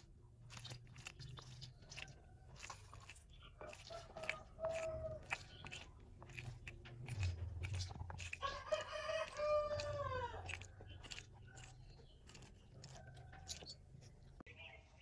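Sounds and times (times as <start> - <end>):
rooster crowing: 3.6 - 5.4, 8.4 - 10.6.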